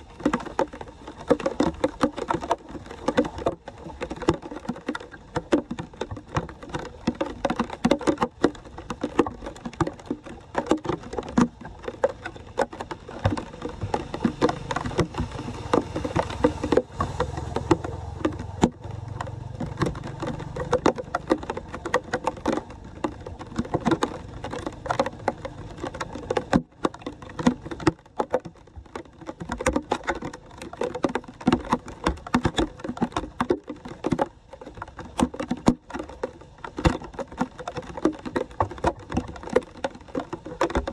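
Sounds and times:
floodwater splashing and dripping: 0.0 - 40.9.

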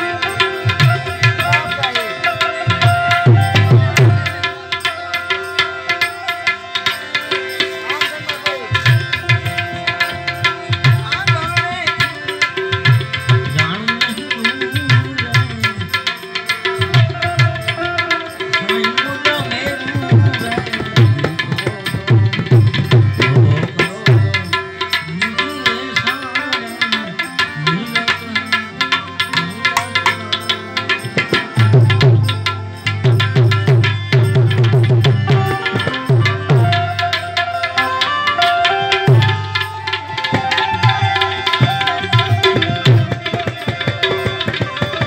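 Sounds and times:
hand drum beat: 0.0 - 4.5, 19.3 - 25.2, 29.2 - 32.4, 33.0 - 37.4, 39.0 - 45.0
man singing: 0.0 - 38.4
harmonium chords: 0.0 - 45.0.

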